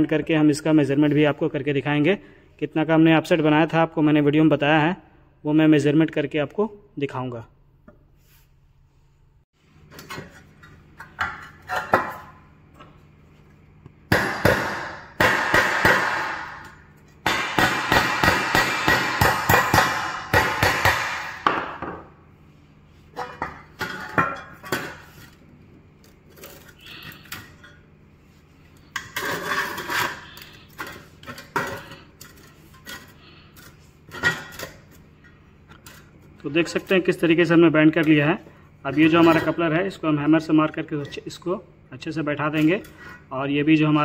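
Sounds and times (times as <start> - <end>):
hammer striking metal trunking: 14.1 - 21.8.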